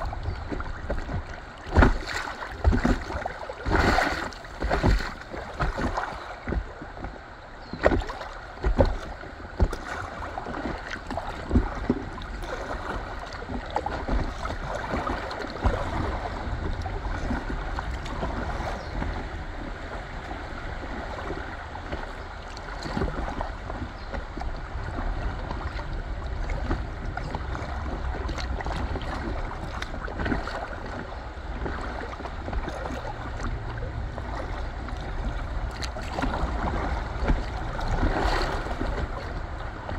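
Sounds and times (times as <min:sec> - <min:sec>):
water lapping against kayak hull: 0:00.0 - 0:39.9
wind rumble on microphone: 0:00.0 - 0:39.9.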